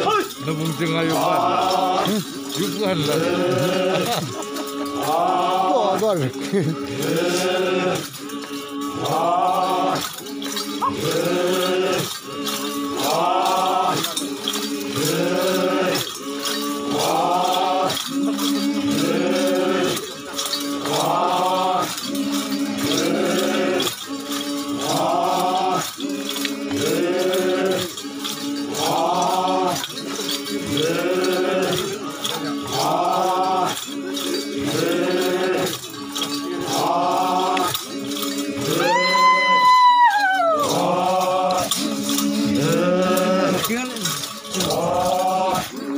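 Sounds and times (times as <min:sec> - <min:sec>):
men chanting in unison: 0:00.0 - 0:45.9
metal ornaments jingling: 0:00.0 - 0:45.9
loud high whoop: 0:38.8 - 0:40.7.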